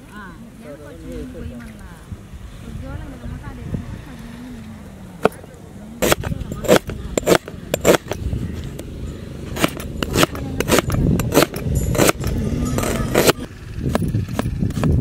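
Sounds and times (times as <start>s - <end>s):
cleaver chopping on wooden board: 6.0s - 8.2s, 9.6s - 14.9s.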